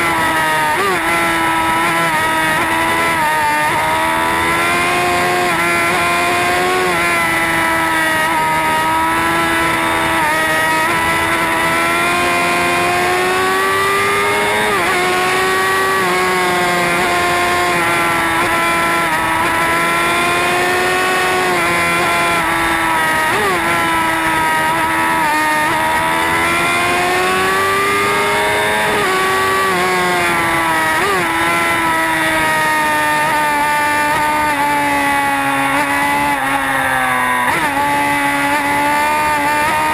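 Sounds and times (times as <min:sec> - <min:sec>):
motorcycle engine at high revs: 0:00.0 - 0:39.9.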